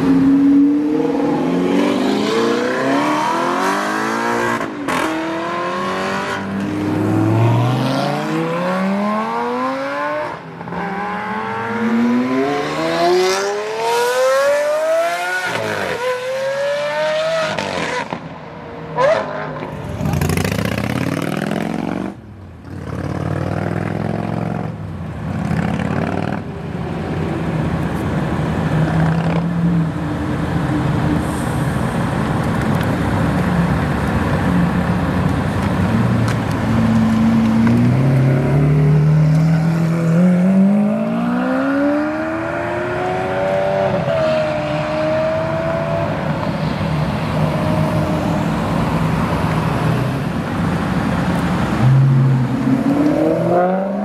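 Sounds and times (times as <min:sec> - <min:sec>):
sports car engines accelerating hard: 0:00.0 - 0:18.3, 0:33.1 - 0:54.0.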